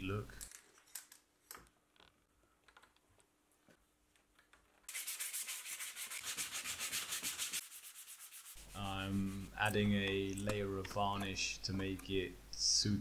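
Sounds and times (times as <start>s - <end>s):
sandpaper rubbing on wood: 4.9s - 9.7s.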